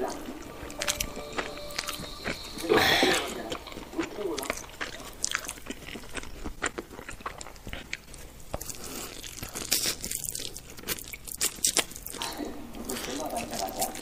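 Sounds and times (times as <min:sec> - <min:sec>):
chewing and lip smacks: 0:03.5 - 0:14.0.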